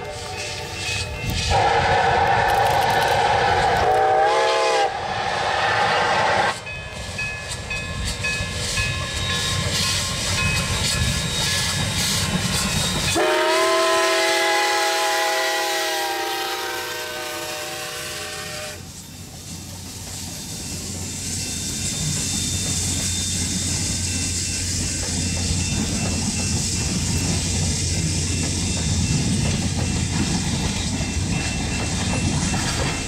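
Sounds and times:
short steam whistle toot: 0.0s - 6.7s, 13.0s - 19.0s
long chime steam whistle: 0.0s - 19.4s, 20.0s - 33.0s
steam locomotives hissing: 0.0s - 33.0s.

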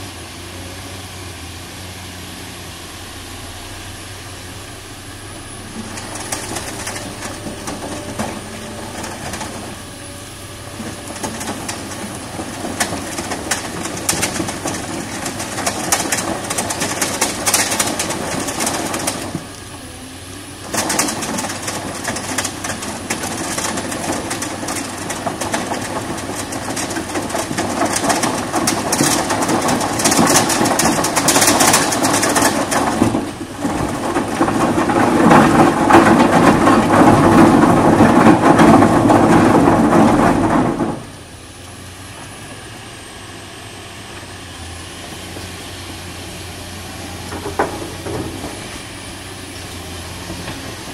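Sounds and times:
excavator running: 0.0s - 50.9s
earth and stones rattling: 5.4s - 19.6s, 20.6s - 41.2s.

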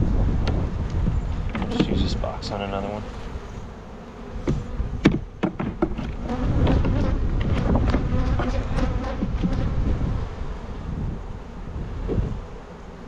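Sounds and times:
honey bees buzzing: 0.0s - 13.0s
clicks and knocks of hive parts: 0.4s - 2.1s, 4.4s - 9.6s.

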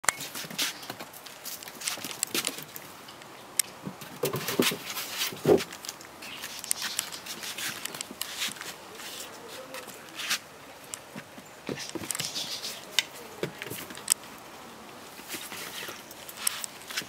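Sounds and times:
puppy paws scuffing and clicking: 0.1s - 3.0s, 3.6s - 17.0s
broom scraping on wooden decking: 4.2s - 5.7s, 6.4s - 10.5s, 11.7s - 13.0s.

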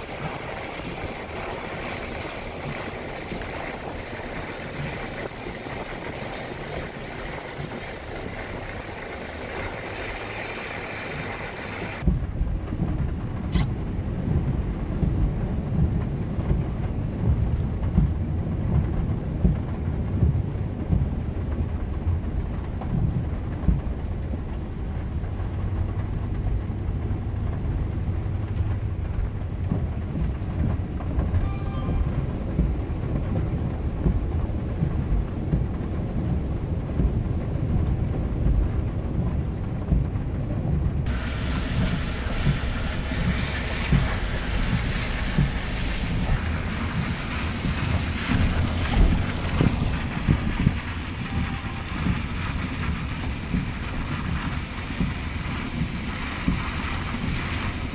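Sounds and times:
rain hissing: 0.0s - 37.4s, 41.0s - 57.9s
vehicle rumbling on waterlogged road: 0.0s - 57.9s.

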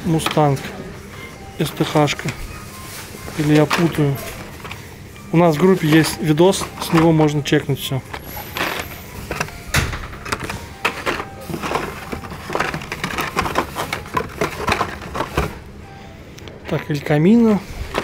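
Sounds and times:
plastic packs clicking and rattling: 0.0s - 0.7s, 1.6s - 15.7s, 16.7s - 18.0s.

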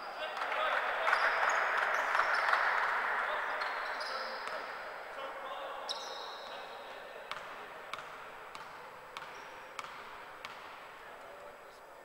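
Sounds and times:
basketball bouncing on hardwood: 7.3s - 10.8s.

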